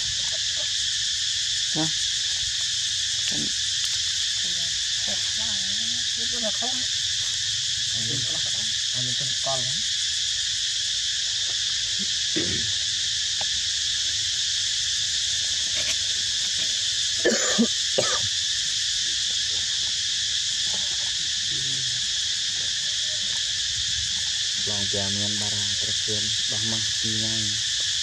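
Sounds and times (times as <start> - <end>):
high insect chorus: 0.0 - 28.0
low voice-like sounds: 12.4 - 12.7, 21.5 - 22.0, 24.6 - 27.6.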